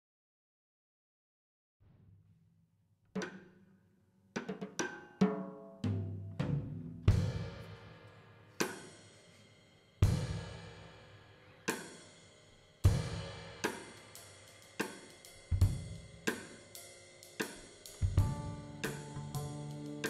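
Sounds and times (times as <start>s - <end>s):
bass drum and snare accents: 14.8s - 16.6s, 17.4s - 20.0s
double bass: 18.2s - 20.0s
piano notes: 18.2s - 20.0s.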